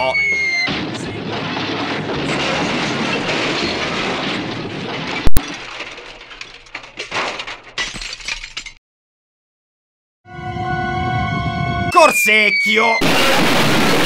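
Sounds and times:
chain and bucket rattling down well: 5.0 - 8.8.

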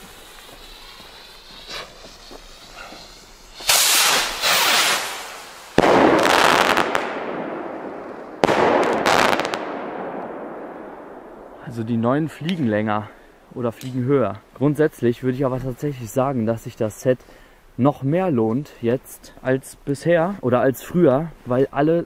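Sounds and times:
firework rockets bursting: 0.0 - 11.5
echo of firework bangs: 0.6 - 11.6.

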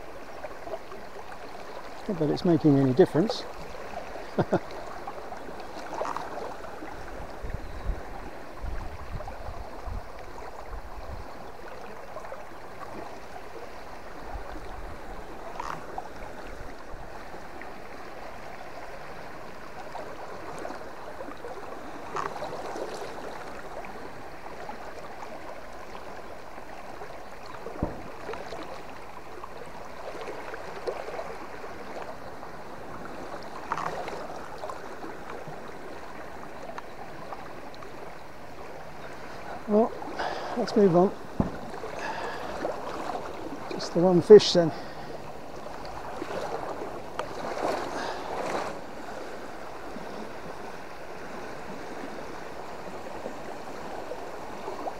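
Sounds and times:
river water flowing: 0.0 - 54.9
knocks or splashes: 27.7 - 28.8, 41.3 - 43.8.

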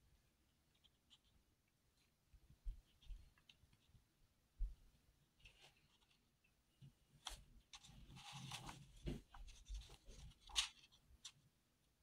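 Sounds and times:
paper pages rustling: 7.2 - 11.4.

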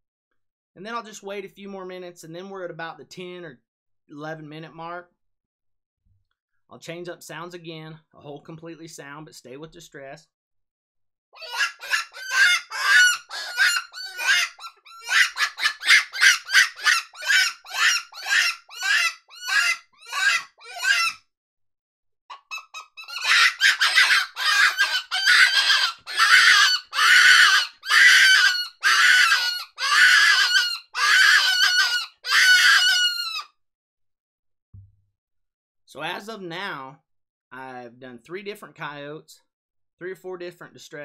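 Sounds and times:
predator call squealing cries: 11.4 - 21.2, 22.3 - 33.5.

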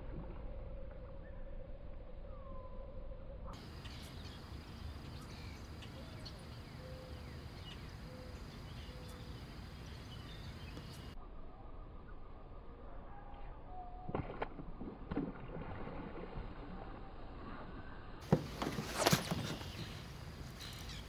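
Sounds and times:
birds chirping: 3.6 - 11.2, 18.2 - 21.0
insects calling: 3.6 - 11.2, 18.3 - 21.0.

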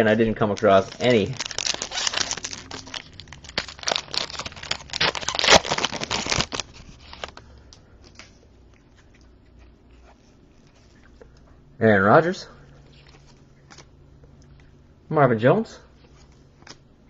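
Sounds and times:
plastic packaging crinkling: 0.0 - 7.4.

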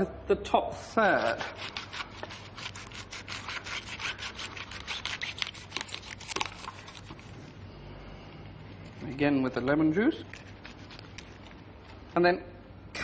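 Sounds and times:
knife crunching through artichoke: 1.1 - 7.4.

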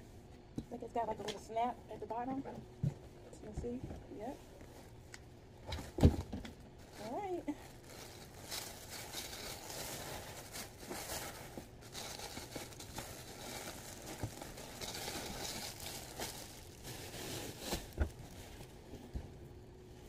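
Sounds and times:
paper and plastic crinkling: 6.8 - 19.0.

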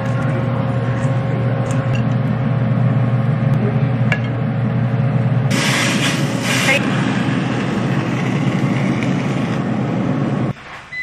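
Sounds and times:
loud hiss: 5.5 - 11.0.

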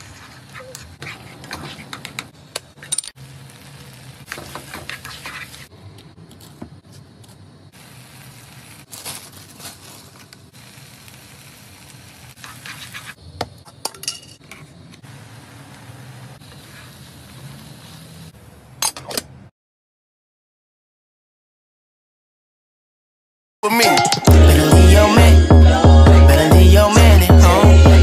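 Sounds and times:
food sizzling in frying pan: 3.2 - 5.7, 7.7 - 13.3, 15.0 - 18.4.

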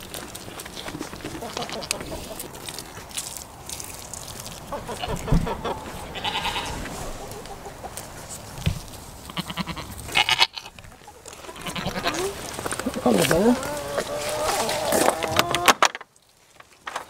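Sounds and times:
goats bleating: 6.1 - 6.7, 9.3 - 15.5.

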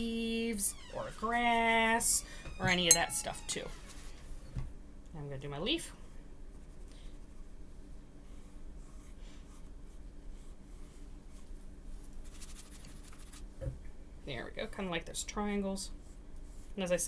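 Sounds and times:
paintbrush scratching on paper: 15.9 - 17.0.

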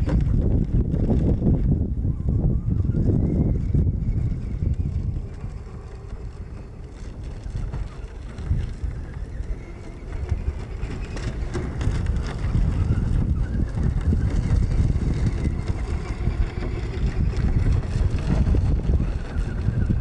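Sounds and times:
wind buffeting microphone: 0.0 - 20.0
rc car electric motor whine: 2.7 - 20.0.

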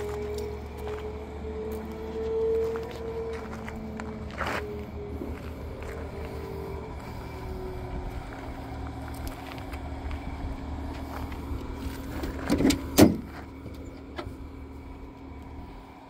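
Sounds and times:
low rumble: 0.0 - 16.0
car door clunks: 12.4 - 13.4.

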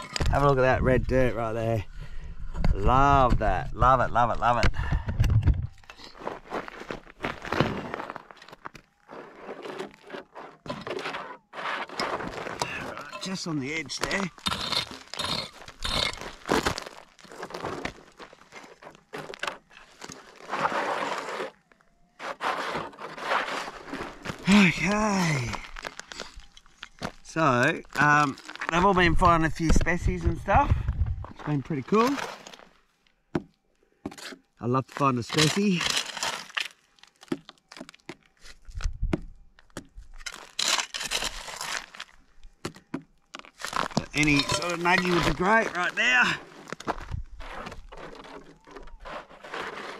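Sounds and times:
loose gravel scraping: 5.9 - 30.5, 31.2 - 32.8, 34.1 - 38.7, 40.2 - 42.3, 43.4 - 49.9
pick striking gravelly dirt: 6.0 - 21.6, 39.2 - 48.1.

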